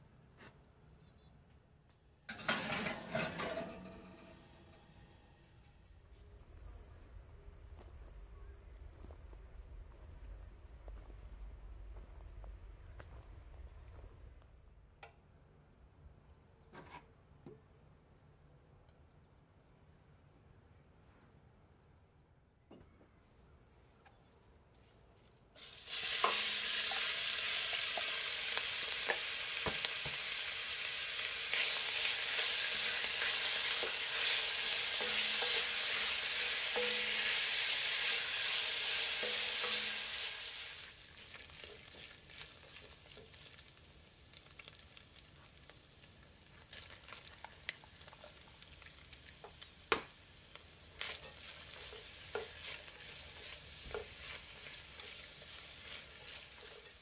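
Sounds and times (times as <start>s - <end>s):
spatula scraping and tapping: 16.7s - 17.6s, 33.6s - 37.4s, 39.2s - 40.0s, 50.6s - 57.0s
meat sizzling in hot oil: 25.6s - 57.0s.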